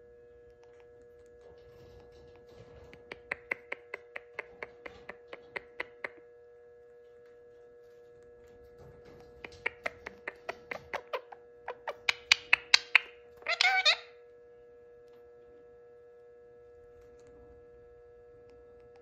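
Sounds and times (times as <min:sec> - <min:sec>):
parakeet clicking: 0:02.9 - 0:06.2, 0:09.4 - 0:14.0.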